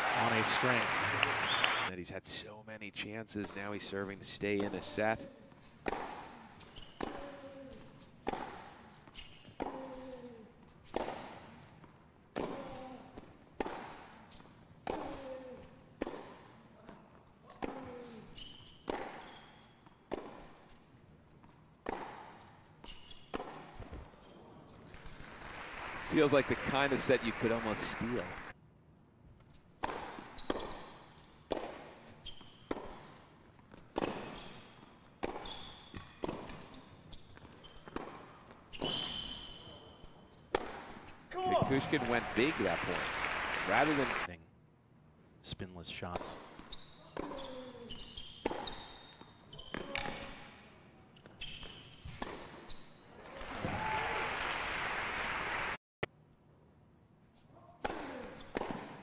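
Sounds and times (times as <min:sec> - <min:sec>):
shoe squeaks on court: 0:05.5 - 0:11.4, 0:17.4 - 0:24.6, 0:29.4 - 0:41.9, 0:46.4 - 0:53.3, 0:58.2 - 0:59.0
racket striking tennis ball: 0:05.8 - 0:06.3, 0:08.2 - 0:10.0, 0:10.9 - 0:11.4, 0:12.4 - 0:14.1, 0:18.8 - 0:19.4, 0:20.1 - 0:20.6, 0:21.8 - 0:22.4, 0:29.8 - 0:34.6, 0:35.2 - 0:36.7, 0:40.5 - 0:41.9, 0:46.4 - 0:47.6, 0:57.8 - 0:59.0.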